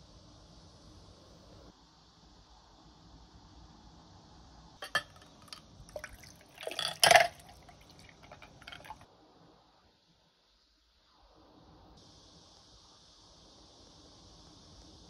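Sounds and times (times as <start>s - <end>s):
coffee pouring over ice: 4.8s - 9.0s
ice clinking on glass: 4.8s - 9.0s.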